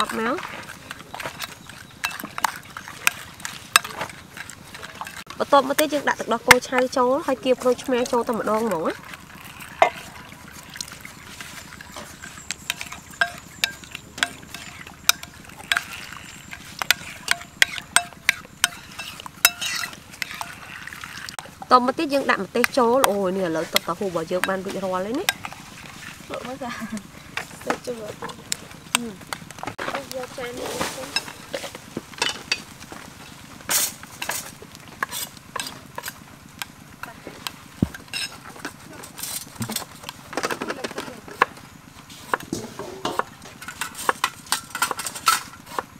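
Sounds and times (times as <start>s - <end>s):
spoon stirring thick mixture: 0.0s - 30.2s
spoon clinking against glass bowl: 1.4s - 4.1s, 11.6s - 20.6s.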